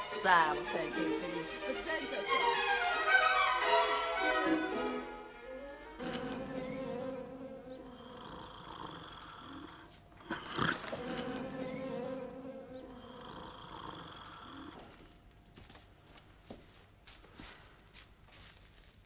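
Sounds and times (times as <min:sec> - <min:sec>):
man snoring: 0:07.7 - 0:11.9, 0:12.6 - 0:15.1.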